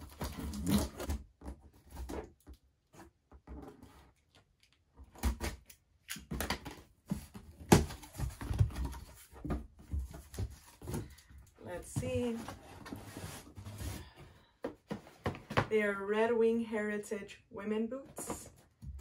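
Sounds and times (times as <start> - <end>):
cardboard flaps rustling: 6.5 - 15.7.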